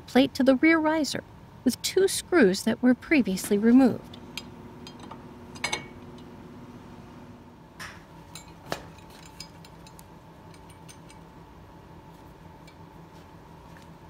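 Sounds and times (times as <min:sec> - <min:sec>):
steady background hum: 0:00.0 - 0:14.0
metal clinks and taps: 0:08.3 - 0:11.3.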